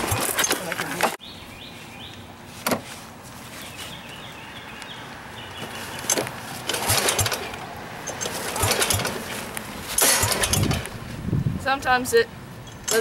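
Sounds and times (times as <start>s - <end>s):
recoil starter rope rattling: 0.0s - 1.2s, 6.0s - 11.1s
engine chugging: 6.1s - 11.1s.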